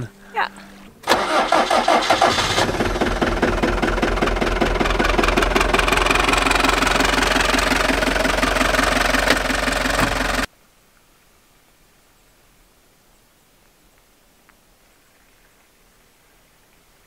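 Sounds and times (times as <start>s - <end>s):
diesel engine idling: 0.0s - 10.5s.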